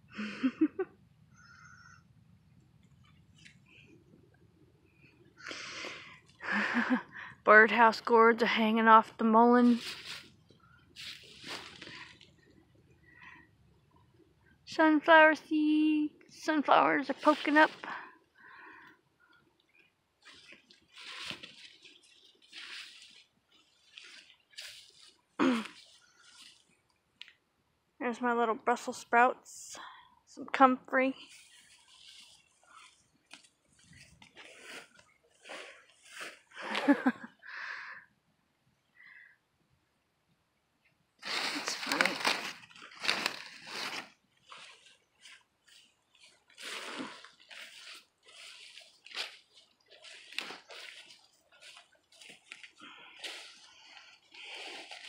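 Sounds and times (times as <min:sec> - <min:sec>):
leaves rustling against phone: 0:09.6 - 0:12.4, 0:17.1 - 0:18.0, 0:20.2 - 0:26.8, 0:31.2 - 0:37.3, 0:41.2 - 0:55.0.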